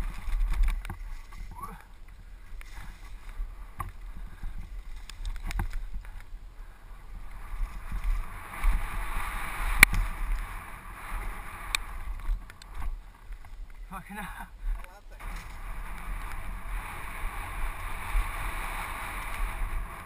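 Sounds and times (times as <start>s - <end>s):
bike rattling over bumps: 0.0s - 20.0s
wind buffeting microphone: 0.0s - 20.0s
tyres rumbling over dirt: 7.1s - 20.0s.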